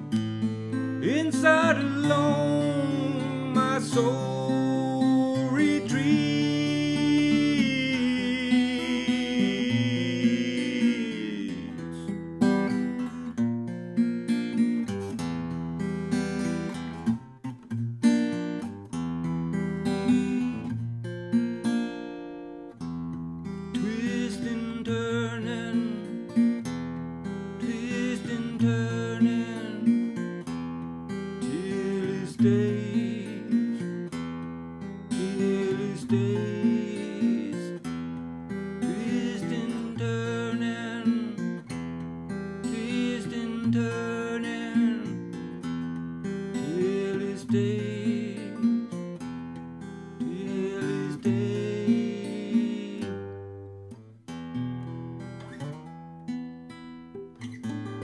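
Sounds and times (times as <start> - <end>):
acoustic guitar riff: 0.0 - 58.0
man singing: 0.9 - 12.8, 19.9 - 20.7, 23.7 - 26.2, 27.6 - 30.3, 31.3 - 34.1, 35.1 - 38.0, 38.7 - 41.7, 42.6 - 45.5, 46.5 - 49.0, 50.2 - 53.5.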